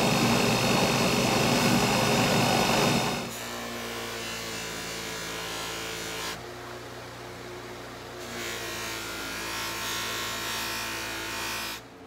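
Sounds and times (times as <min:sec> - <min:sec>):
buffer motor humming: 0:00.0 - 0:03.3.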